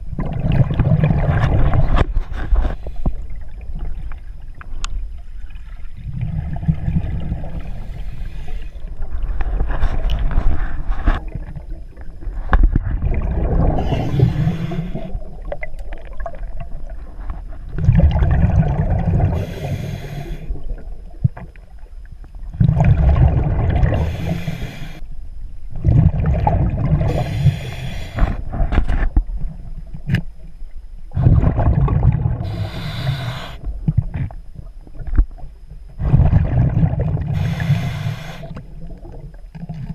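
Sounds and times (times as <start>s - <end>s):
low rumble of water: 0.0s - 39.9s
diver exhaling bubbles: 0.1s - 2.0s, 12.3s - 17.0s, 17.7s - 21.0s, 22.5s - 25.0s, 25.8s - 28.7s, 31.1s - 34.3s, 36.0s - 39.9s.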